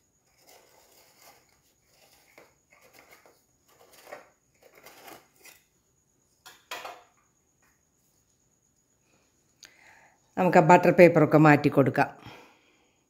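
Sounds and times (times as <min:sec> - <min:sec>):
knife scraping metal tin: 0:00.2 - 0:05.7.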